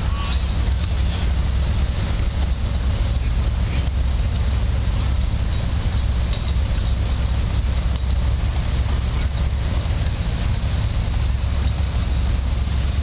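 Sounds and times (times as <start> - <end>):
road roller engine rumbling: 0.0 - 13.0.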